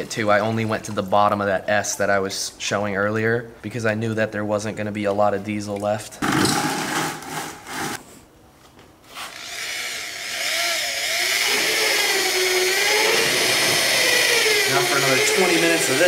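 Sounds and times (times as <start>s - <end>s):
electric drill whining: 9.3s - 16.0s.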